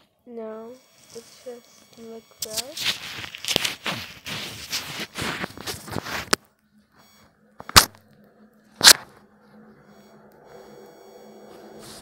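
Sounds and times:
tissue rubbing on microphone: 2.7 - 6.4.

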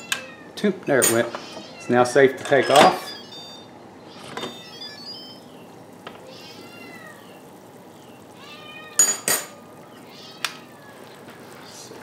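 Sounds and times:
cat meowing: 1.4 - 2.0, 2.7 - 5.4, 6.2 - 7.6, 8.3 - 12.0.

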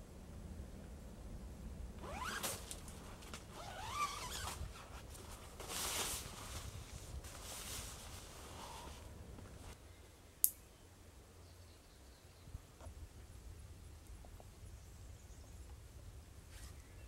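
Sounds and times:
tent zipper being pulled: 2.0 - 9.1.

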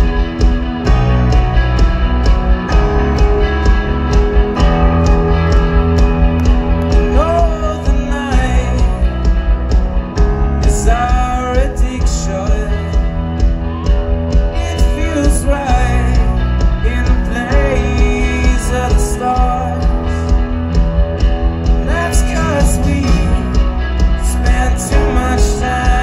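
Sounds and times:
live rock band playing: 0.0 - 26.0
person singing lead: 7.0 - 9.1.

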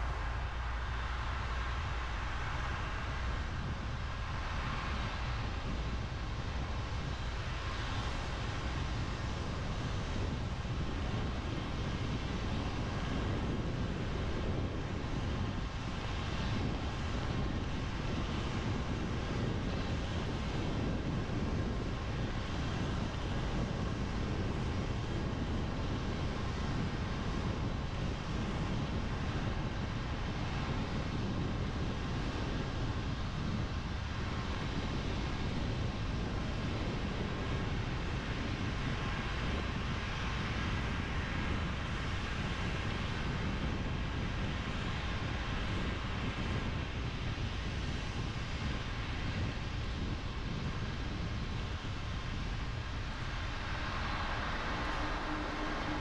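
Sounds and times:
tyres hissing on wet road: 0.0 - 9.8, 52.2 - 56.0
low road rumble: 0.0 - 56.0.

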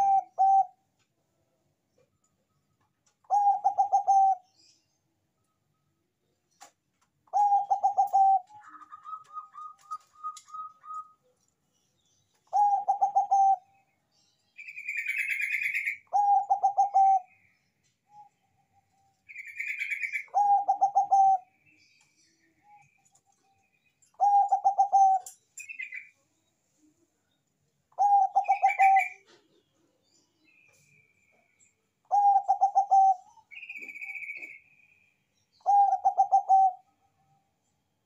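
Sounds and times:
dove cooing: 0.0 - 0.8, 3.2 - 4.5, 7.3 - 11.2, 12.5 - 13.7, 14.9 - 17.4, 19.5 - 21.6, 24.2 - 25.9, 28.0 - 29.6, 32.1 - 34.6, 35.6 - 36.9
dove harsh calls: 3.3 - 4.4, 19.4 - 21.5, 32.1 - 34.6, 35.6 - 36.8.

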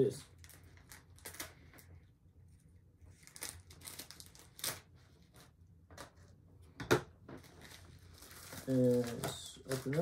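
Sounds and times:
plastic mailer crinkling: 0.3 - 1.9, 3.1 - 5.5, 7.4 - 10.0.

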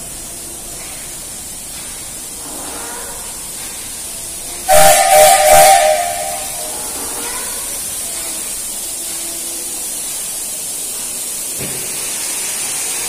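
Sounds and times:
steady steam hiss: 0.0 - 13.0
steam locomotive whistle: 4.7 - 7.1.

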